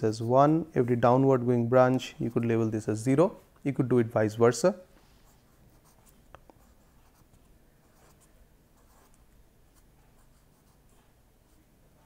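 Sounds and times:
pen scratching on paper: 5.2s - 12.0s.

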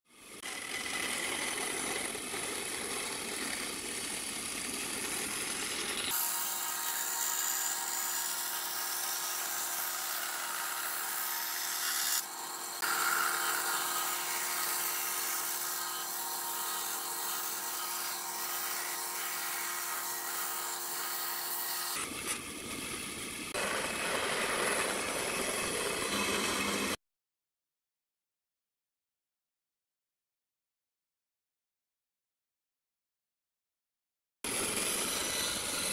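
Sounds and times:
power saws cutting wood: 0.1s - 27.0s, 34.5s - 35.9s.

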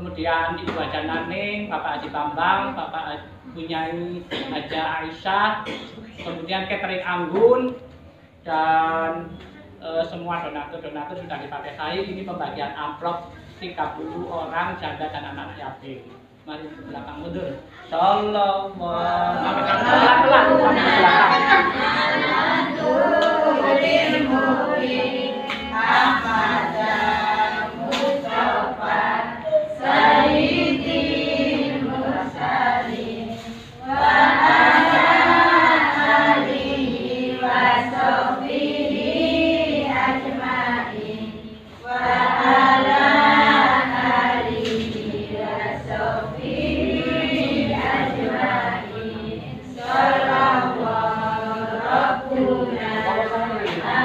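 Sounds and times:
group singing in chorus: 18.7s - 54.0s.

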